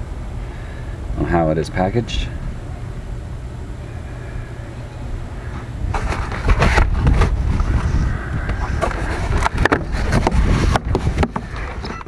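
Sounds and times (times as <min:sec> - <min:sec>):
steady low rumble: 0:00.0 - 0:12.0
cardboard scraping and rustling: 0:05.9 - 0:12.0.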